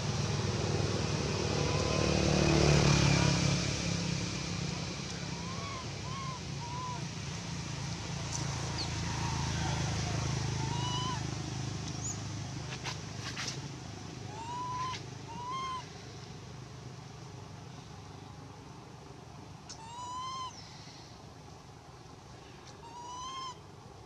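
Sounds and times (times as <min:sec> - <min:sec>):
infant monkey cooing: 0:01.5 - 0:02.2, 0:05.2 - 0:07.2, 0:09.1 - 0:11.4, 0:14.3 - 0:15.9, 0:19.7 - 0:20.6, 0:22.8 - 0:23.6.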